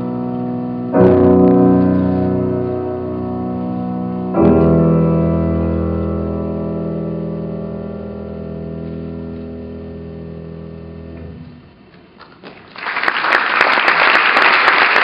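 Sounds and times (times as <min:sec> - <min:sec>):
piano chord: 0:00.0 - 0:11.8
audience applause: 0:12.2 - 0:15.0.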